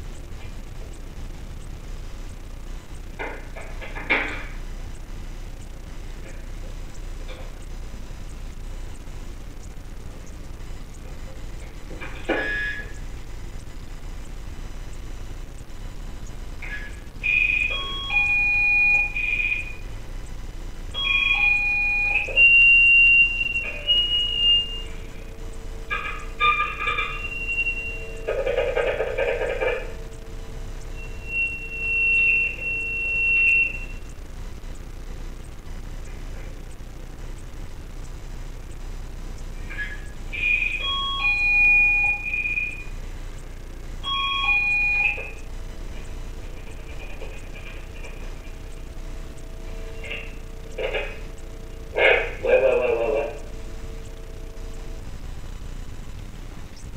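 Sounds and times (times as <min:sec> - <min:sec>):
doorphone electronic ring melody: 0:21.0 - 0:25.2, 0:25.9 - 0:30.1, 0:44.0 - 0:45.4.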